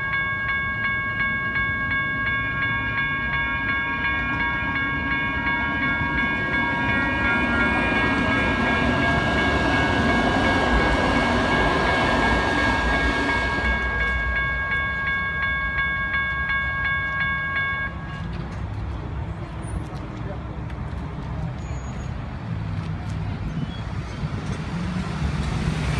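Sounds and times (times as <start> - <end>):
railroad crossing bells ringing: 0.0 - 19.8
train rumbling: 0.0 - 25.9.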